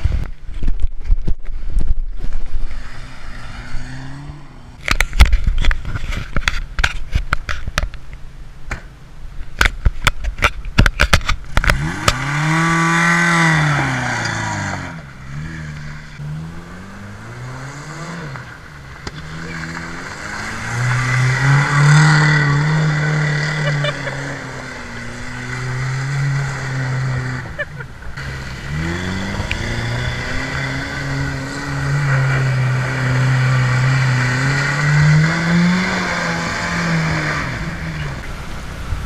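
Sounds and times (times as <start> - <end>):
engine revving hard: 2.7 - 4.8, 11.6 - 38.6.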